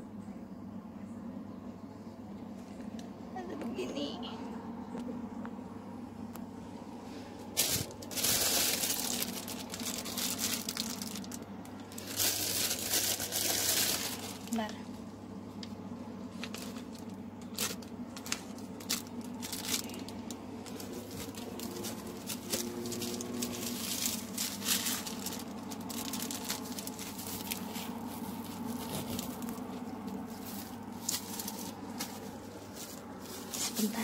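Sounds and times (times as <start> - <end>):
low steady hum: 0.0 - 34.0
plastic packaging crinkling: 7.4 - 14.8, 15.6 - 34.0.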